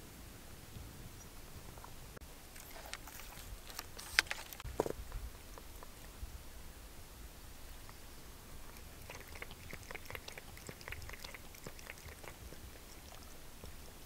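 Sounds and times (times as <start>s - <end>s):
cat lapping water: 2.5s - 3.6s, 8.6s - 14.0s.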